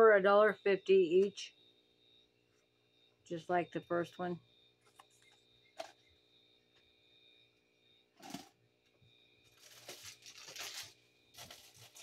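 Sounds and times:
soft rustling of items: 9.4 - 12.0.

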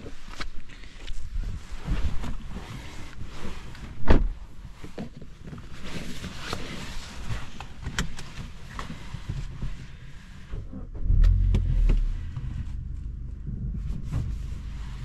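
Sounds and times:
car driving on snowy road: 0.0 - 15.0
heavy thump: 11.0 - 15.0.

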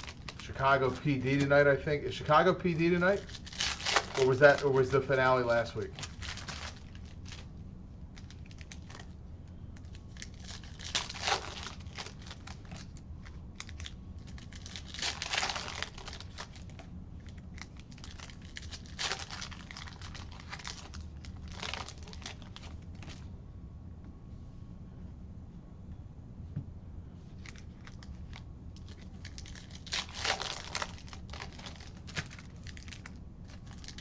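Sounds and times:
cards being handled: 0.0 - 1.9, 2.8 - 7.5
foil wrappers crinkling and tearing: 0.0 - 7.5, 8.2 - 9.2, 9.8 - 23.2, 27.4 - 34.0
steady low hum: 0.0 - 34.0.

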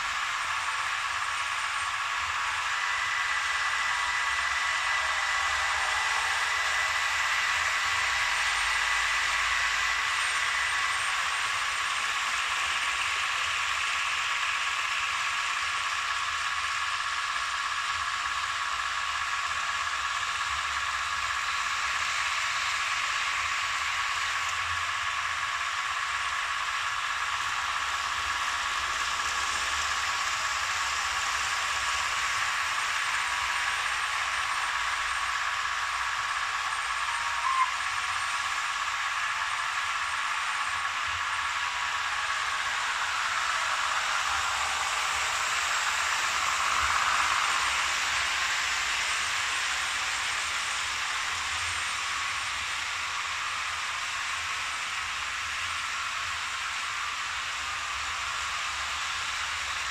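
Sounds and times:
electric motor whine: 0.0 - 59.9
model train wheels rolling: 0.0 - 59.9
thin steady tones: 0.0 - 59.9.

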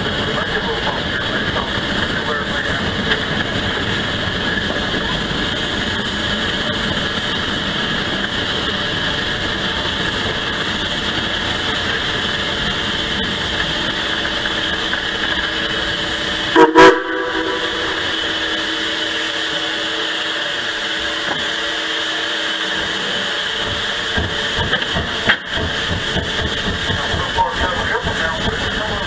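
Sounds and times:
steam train rumble and clatter: 0.0 - 29.0
steam whistle toot: 16.5 - 18.5.

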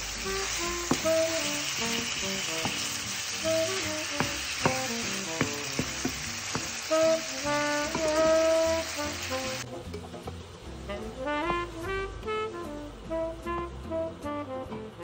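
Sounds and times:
food sizzling in hot oil: 0.0 - 13.1
wooden spatula knocking pan: 0.9 - 1.3, 2.6 - 2.9, 4.2 - 6.8, 7.8 - 8.4.

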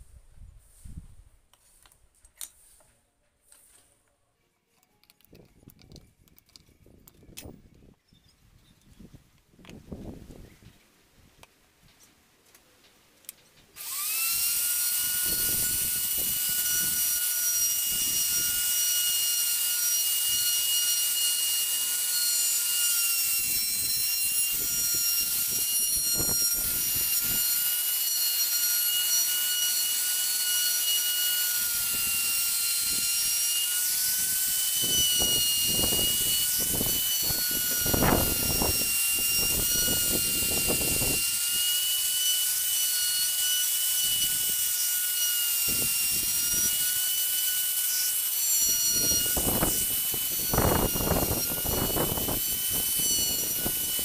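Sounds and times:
router whining: 13.7 - 54.0
router bit grinding wood: 13.8 - 54.0.

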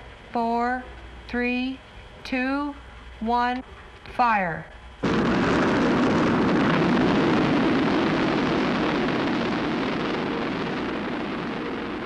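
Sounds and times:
rocket exhaust roar: 5.0 - 12.0.

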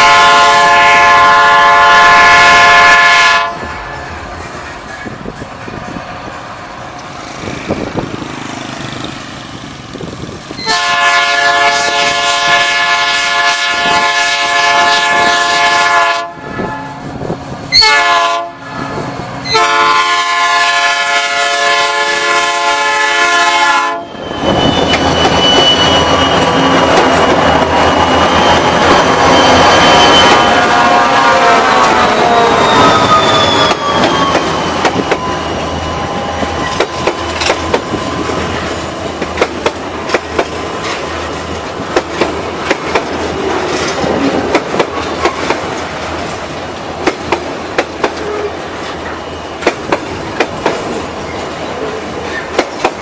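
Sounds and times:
train air horn blasts: 0.0 - 4.2, 10.6 - 38.4
diesel locomotive engines rumbling: 0.0 - 53.0
train wheels on rails: 0.0 - 53.0.

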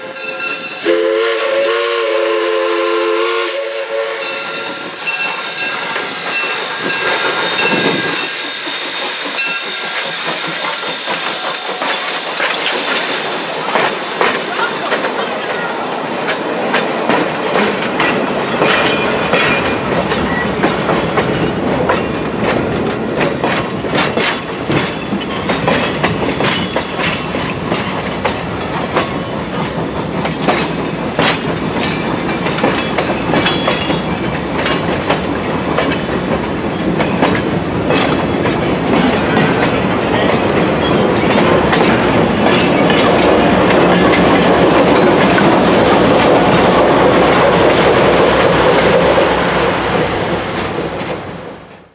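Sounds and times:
diesel locomotive rumble: 0.9 - 51.9
train wheels clanking over rail joints: 4.2 - 51.9.

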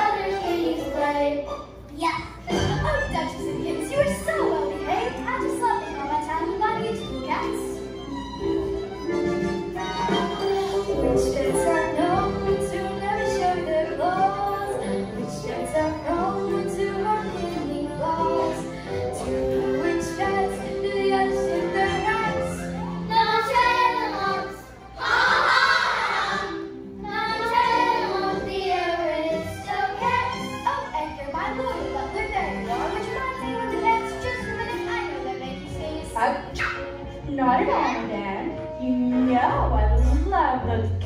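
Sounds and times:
backing track music: 0.0 - 41.0
children singing: 9.8 - 35.6.

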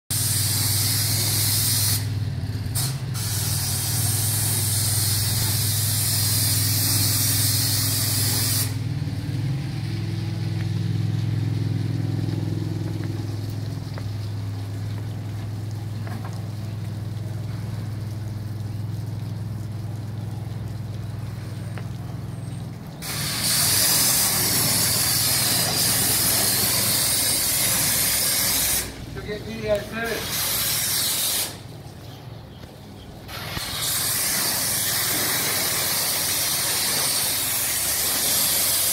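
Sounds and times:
pressure washer jet hissing: 0.1 - 9.0, 22.9 - 31.7, 33.2 - 38.9
engine humming: 0.1 - 38.9.

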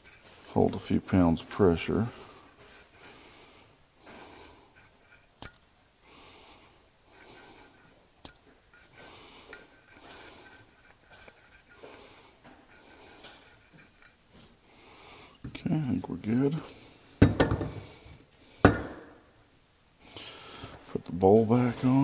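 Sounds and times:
faint rubbing: 7.1 - 14.6.

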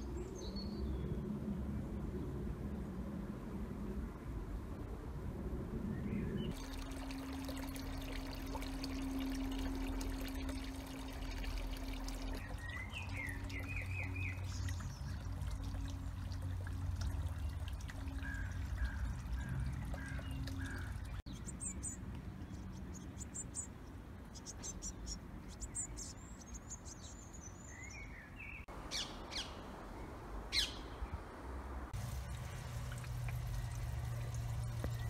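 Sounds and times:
low hum: 0.7 - 21.2, 31.7 - 35.0
water trickling and pouring: 6.5 - 21.3, 31.9 - 35.0.

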